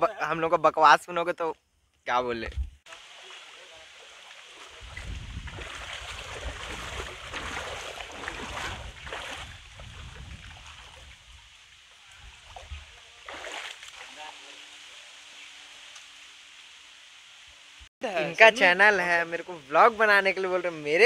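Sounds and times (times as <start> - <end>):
people wading through water: 2.9 - 15.8.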